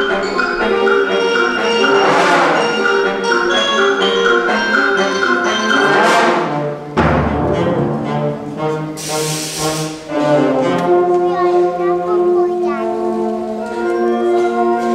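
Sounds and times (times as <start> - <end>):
concert band playing chords: 0.0 - 9.1
loud low percussion hit: 7.0 - 8.2
high cymbal wash: 9.0 - 10.1.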